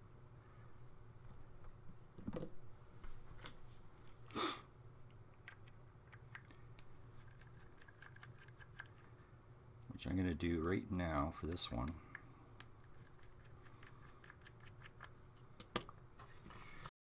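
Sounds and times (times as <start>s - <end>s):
low steady hum: 0.0s - 16.9s.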